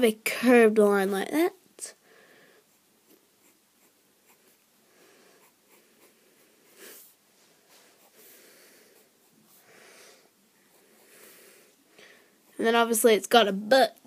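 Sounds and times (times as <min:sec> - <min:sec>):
person breathing: 0:02.0 - 0:02.8, 0:04.8 - 0:12.5
pencil drawing on paper: 0:02.7 - 0:09.8, 0:10.6 - 0:11.8.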